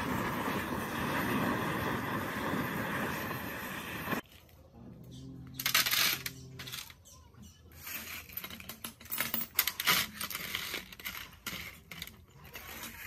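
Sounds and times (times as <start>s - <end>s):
metal parts clinking and rattling: 5.6s - 7.0s, 7.8s - 13.0s.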